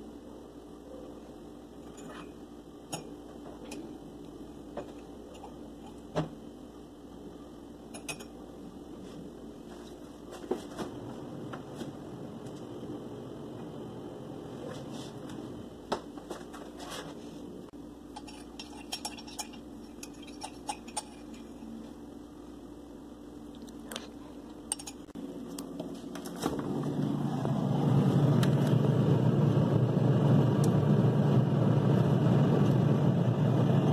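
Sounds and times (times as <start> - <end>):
steady motor hum: 0.0 - 33.9
metal spoon clinking on cup: 18.2 - 21.6, 24.7 - 25.1.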